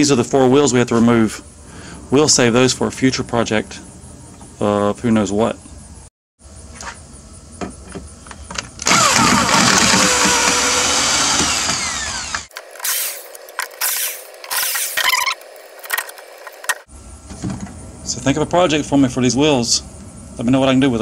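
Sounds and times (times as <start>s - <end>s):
cordless drill backing out screws: 8.8s - 15.3s.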